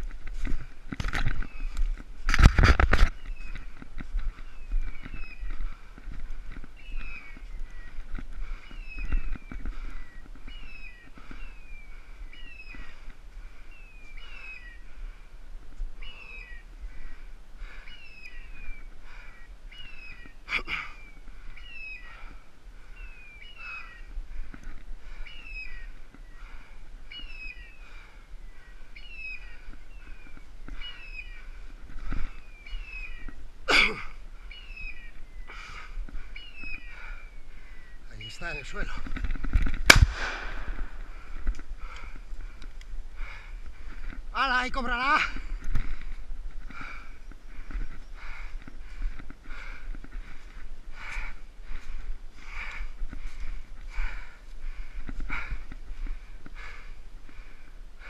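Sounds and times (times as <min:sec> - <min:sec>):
brush crackling: 0:28.8 - 0:57.7.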